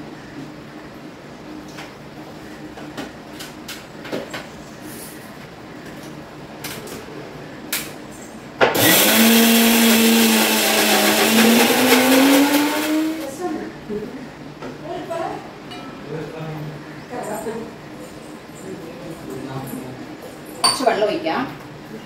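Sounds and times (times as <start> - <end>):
mixer grinder motor whine: 8.8 - 13.4.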